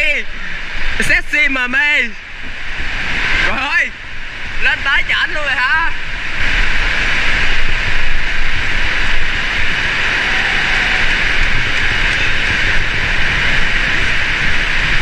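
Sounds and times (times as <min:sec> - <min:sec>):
heavy rain pouring: 0:00.0 - 0:15.0.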